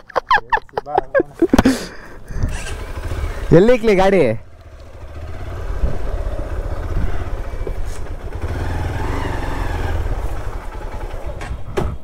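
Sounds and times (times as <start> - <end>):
city traffic: 0.0 - 12.0
motorcycle engine running: 2.2 - 11.8.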